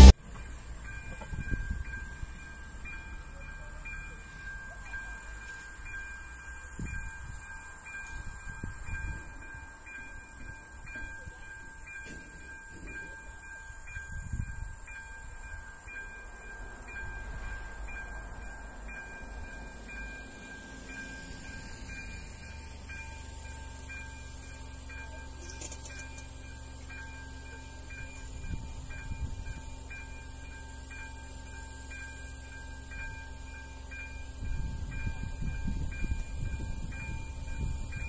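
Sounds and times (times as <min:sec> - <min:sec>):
wind buffeting microphone: 0:08.2 - 0:09.6, 0:14.0 - 0:14.8, 0:34.4 - 0:38.0.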